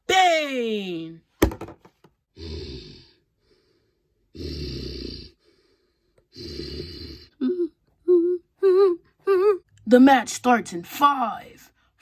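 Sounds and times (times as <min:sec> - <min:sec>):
person growling breaths: 0:02.3 - 0:07.5.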